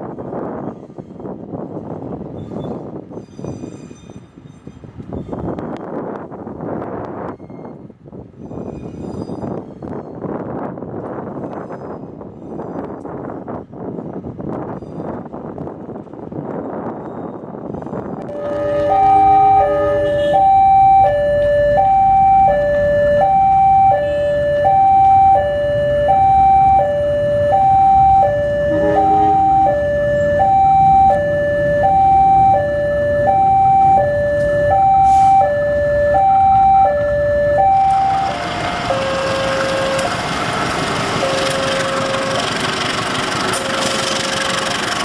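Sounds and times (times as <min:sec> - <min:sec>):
passing train: 0:00.0 - 0:23.2, 0:27.1 - 0:45.0
low repeating warning tone: 0:18.3 - 0:22.2, 0:27.5 - 0:32.3
two-tone warning siren: 0:18.3 - 0:42.9.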